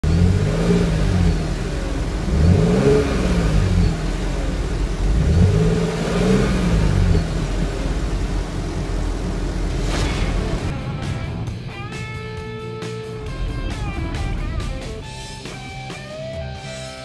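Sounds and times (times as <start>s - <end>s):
car engine revving: 0.0s - 12.2s.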